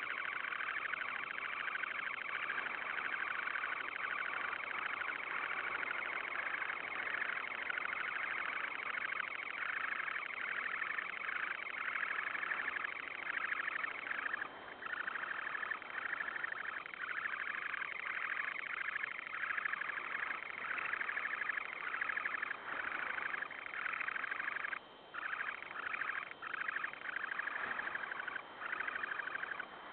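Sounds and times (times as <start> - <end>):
sandpiper buzzy trill: 0.0 - 29.9.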